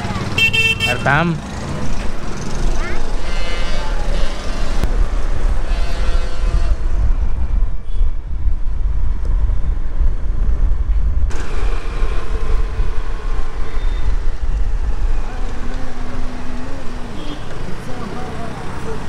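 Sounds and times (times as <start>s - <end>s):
motorbike engine and tyre noise: 0.0s - 19.0s
wind rumble on microphone: 3.5s - 18.0s
brief horn: 5.6s - 6.9s.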